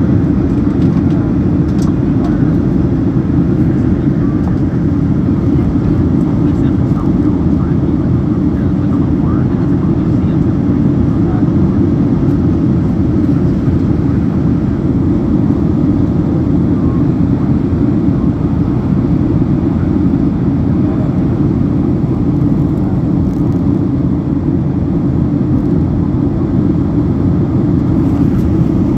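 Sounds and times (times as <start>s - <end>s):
airliner cabin engine rush: 0.0s - 28.9s.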